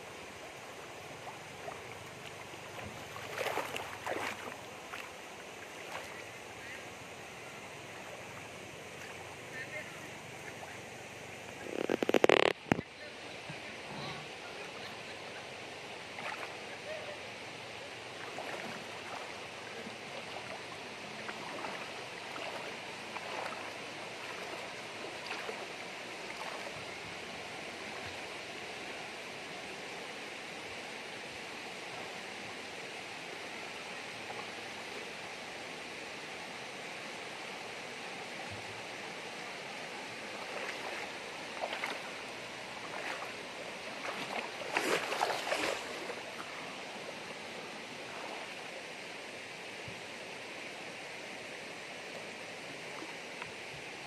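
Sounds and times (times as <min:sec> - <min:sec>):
stream flowing over rocks: 0:00.0 - 0:54.0
person splashing through water: 0:02.8 - 0:05.1, 0:18.2 - 0:19.3, 0:21.2 - 0:25.7, 0:26.3 - 0:26.8, 0:40.4 - 0:42.2, 0:42.8 - 0:46.5.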